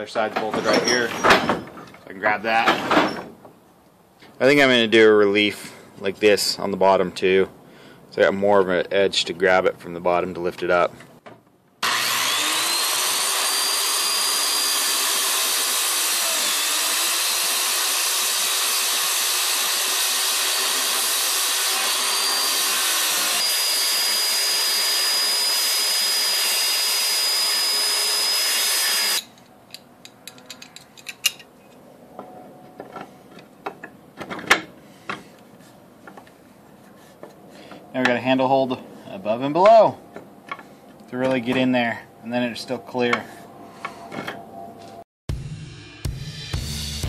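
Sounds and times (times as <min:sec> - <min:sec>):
circular saw cutting wood: 0:11.8 - 0:29.4.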